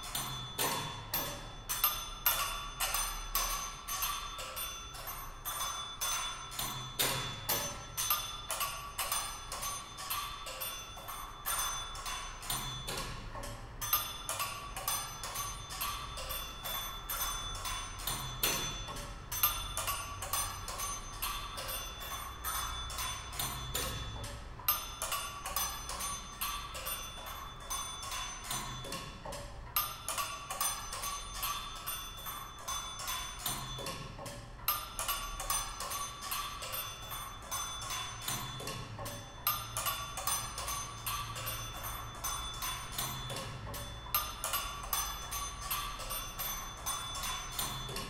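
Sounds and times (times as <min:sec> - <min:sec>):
steady ringing tone: 0:00.0 - 0:48.0.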